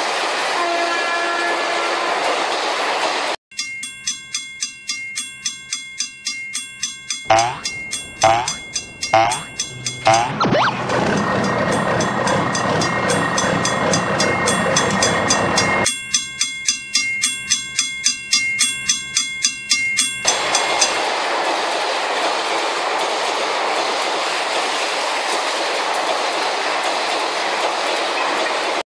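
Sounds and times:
hiss of train rolling past: 0.0s - 3.4s, 20.2s - 28.8s
train clickety-clack: 0.0s - 3.4s, 6.8s - 28.8s
level-crossing bell ringing: 3.6s - 20.4s.

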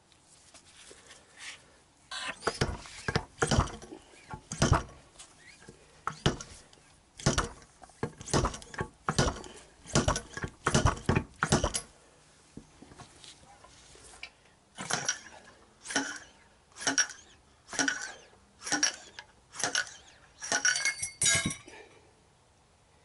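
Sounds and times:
sharp metal knocks: 7.2s - 11.9s.

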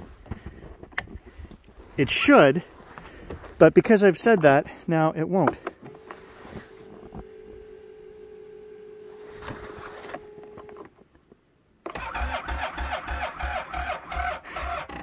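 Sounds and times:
snowmobile engine cranking: 11.9s - 15.0s.

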